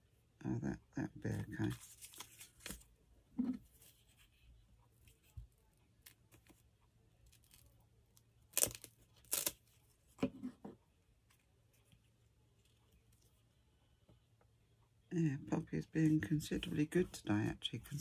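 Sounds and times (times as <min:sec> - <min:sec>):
paper tearing: 0:08.5 - 0:09.6.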